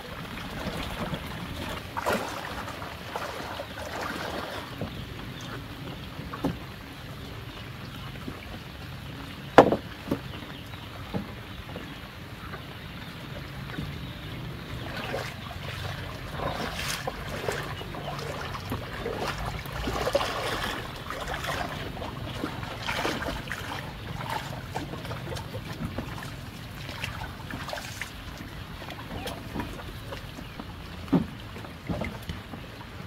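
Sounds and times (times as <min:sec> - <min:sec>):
water sloshing around wading person: 0:00.0 - 0:33.0
wooden planks knocking: 0:09.6 - 0:10.2.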